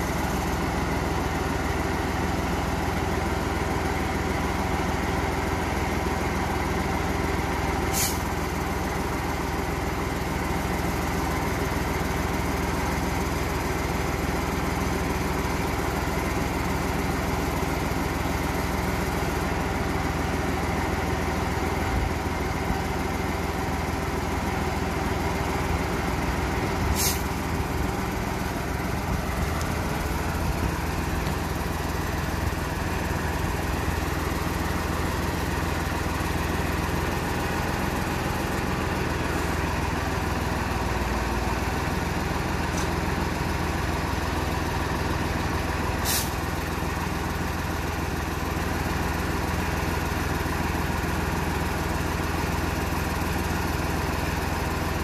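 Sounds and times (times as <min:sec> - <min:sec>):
truck diesel engine running: 0:00.0 - 0:55.0
short sharp hiss: 0:07.9 - 0:08.3, 0:26.9 - 0:27.4, 0:46.0 - 0:46.4.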